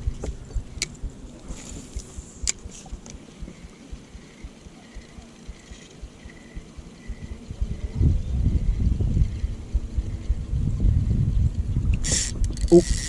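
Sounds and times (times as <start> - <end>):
wind rumble on microphone: 0.0 - 13.0
fishing reel clicks: 12.0 - 13.0
fishing reel winding: 12.0 - 13.0.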